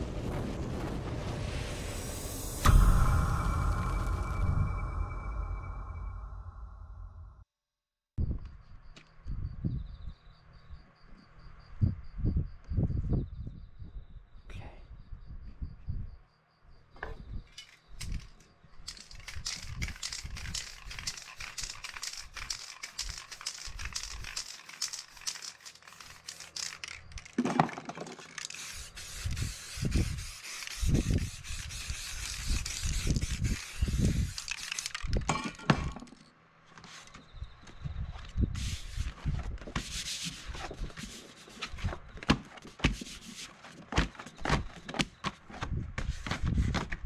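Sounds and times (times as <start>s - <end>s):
spray paint can hissing: 18.9s - 27.4s, 28.2s - 35.2s.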